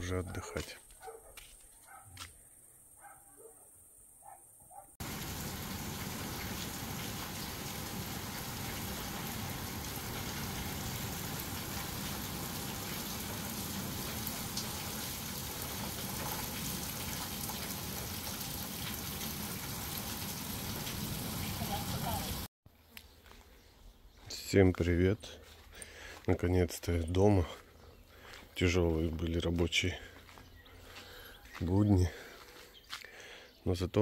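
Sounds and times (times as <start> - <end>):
heavy rain falling: 5.0 - 22.5.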